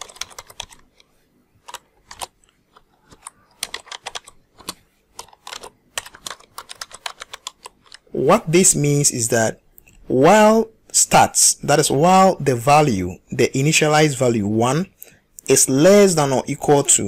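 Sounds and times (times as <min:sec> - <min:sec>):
keyboard typing: 0:00.0 - 0:08.2.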